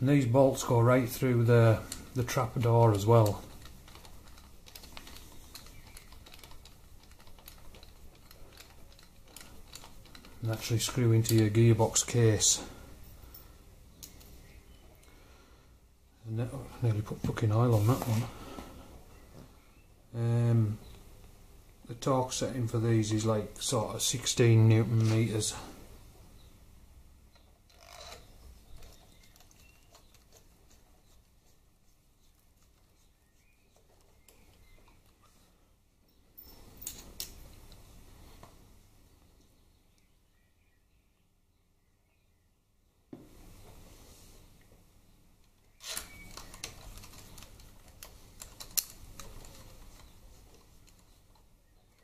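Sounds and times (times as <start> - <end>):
metal ticks and scraping: 1.8 - 12.0, 45.9 - 52.0
short rustle: 17.1 - 19.4.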